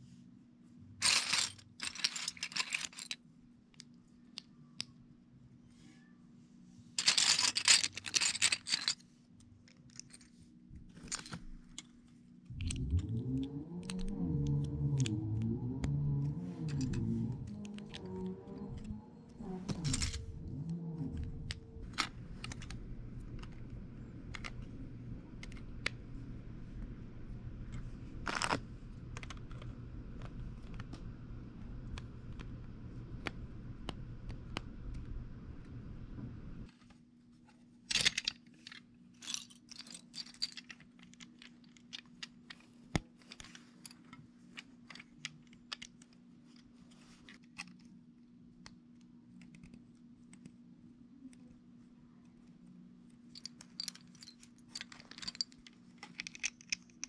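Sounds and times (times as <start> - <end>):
low background hum: 0.0 - 57.0
plastic bricks clicking together: 12.6 - 15.1.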